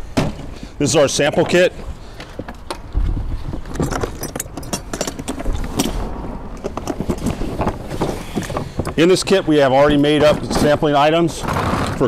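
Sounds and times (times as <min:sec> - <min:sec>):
latches clicking: 0:03.8 - 0:07.8.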